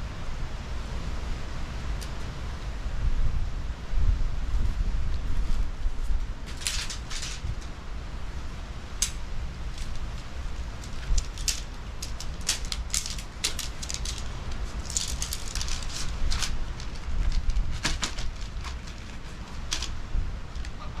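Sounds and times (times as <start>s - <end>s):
steady low rumble: 0.0s - 21.0s
tent poles clicking: 6.5s - 7.7s, 9.0s - 20.8s.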